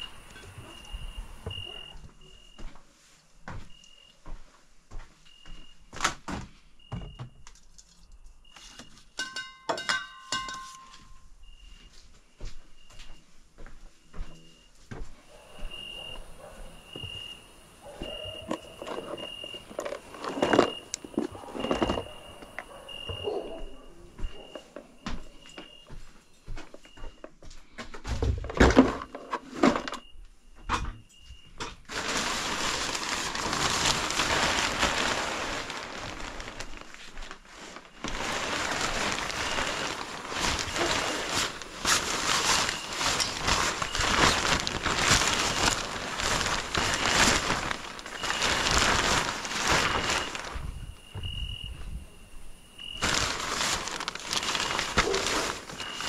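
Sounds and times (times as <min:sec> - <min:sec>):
vehicle cover rustling: 0:31.9 - 0:50.8, 0:53.0 - 0:56.0.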